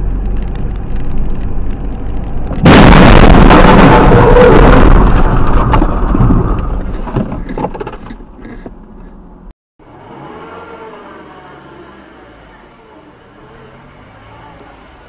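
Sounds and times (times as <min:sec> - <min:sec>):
car engine and road hum: 0:00.0 - 0:03.2, 0:04.4 - 0:15.0
knocks and rattles of wreck: 0:00.0 - 0:09.4
car crash noise: 0:00.2 - 0:08.2.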